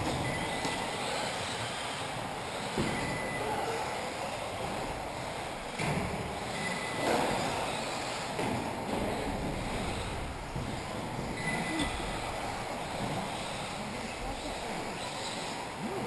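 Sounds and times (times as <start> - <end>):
model car motors and tyres hissing: 0.8 - 2.8.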